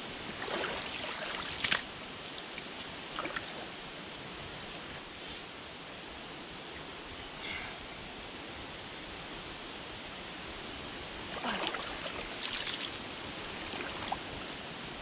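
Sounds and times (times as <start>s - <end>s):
water rushing: 0.1s - 4.2s, 11.0s - 15.0s
water sloshing and splashing: 0.3s - 3.8s, 11.3s - 14.5s.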